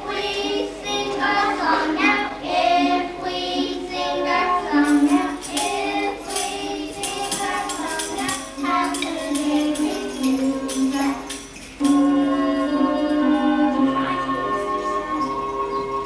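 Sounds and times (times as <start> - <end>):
children singing: 0.0 - 16.0
jingling percussion: 3.7 - 16.0.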